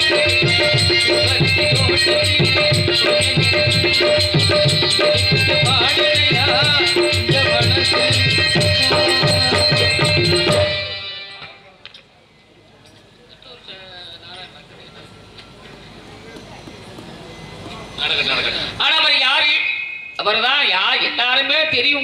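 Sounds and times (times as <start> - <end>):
fast drum beating: 0.0 - 10.7.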